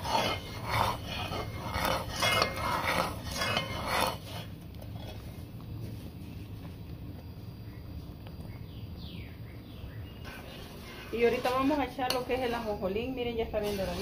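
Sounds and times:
metal spoon scraping pot: 0.0 - 5.3, 10.2 - 14.0
syrup boiling: 0.0 - 5.4, 10.2 - 14.0.

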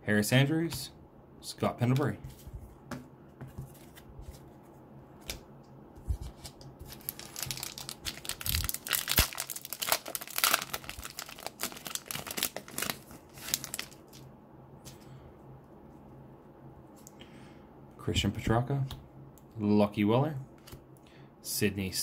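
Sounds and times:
foil wrapper tearing and crinkling: 6.9 - 14.2.

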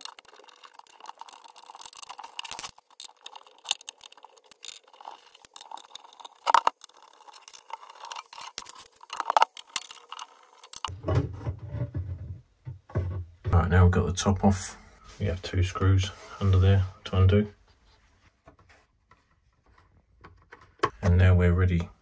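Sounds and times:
metal clicks scrapes and rattles: 0.0 - 10.9.

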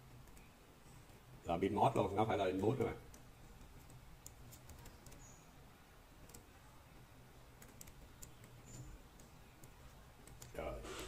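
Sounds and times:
computer keyboard keystrokes: 2.6 - 5.3, 7.6 - 10.6.

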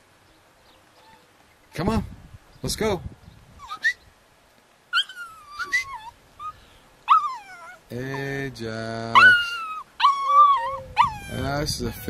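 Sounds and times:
puppy whimpering: 3.6 - 4.0, 4.9 - 8.4, 9.1 - 12.0.

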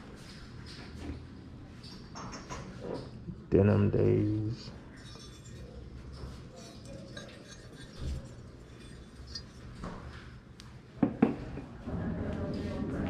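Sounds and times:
ceramic figurines clinking: 4.8 - 10.0.

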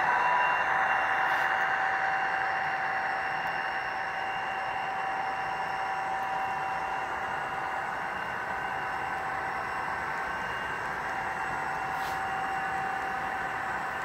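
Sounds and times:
thin steady whine: 0.0 - 14.0
model train wheels hissing on rail: 11.8 - 14.0.

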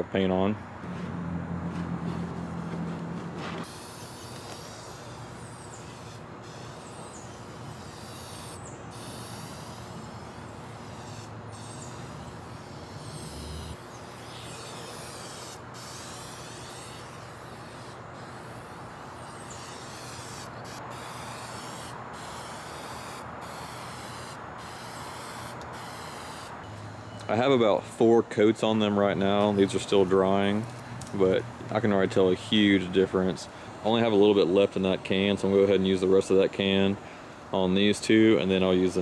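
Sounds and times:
aerosol spray can hissing: 3.7 - 13.6, 14.3 - 26.5.

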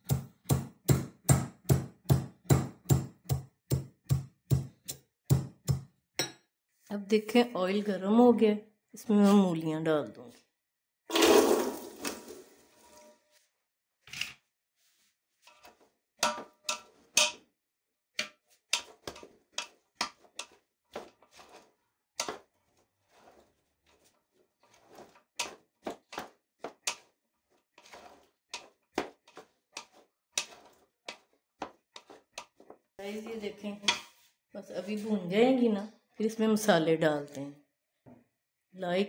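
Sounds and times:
metal spoon scraping pot: 15.3 - 17.5, 18.2 - 34.3.

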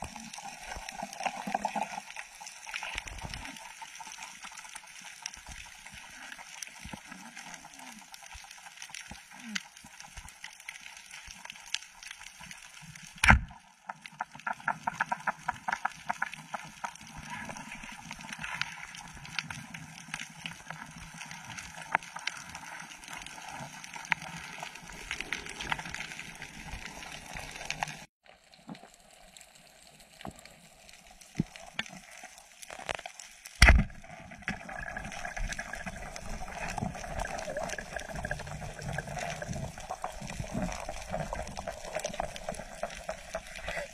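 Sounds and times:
reef crackle of small clicks: 0.1 - 43.9
speargun firing underwater: 13.2 - 13.5, 33.6 - 34.0.

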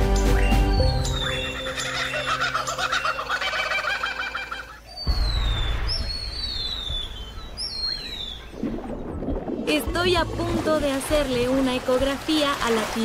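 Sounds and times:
falling whistled bird calls: 0.0 - 8.6
birds chattering: 0.1 - 5.4.

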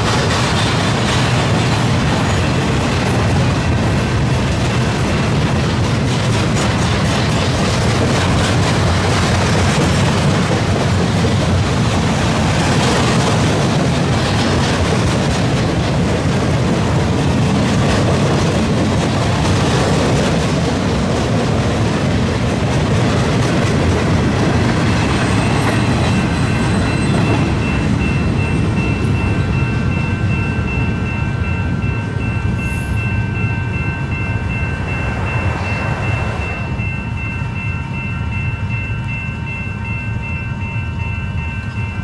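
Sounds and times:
train wheels rumbling on track: 0.0 - 42.0
thin high tone: 32.2 - 41.9.

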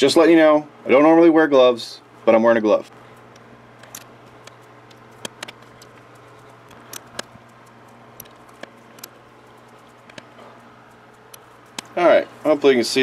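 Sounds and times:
steady low hum: 0.0 - 13.0
lathe chuck clicks and taps: 3.3 - 12.0.

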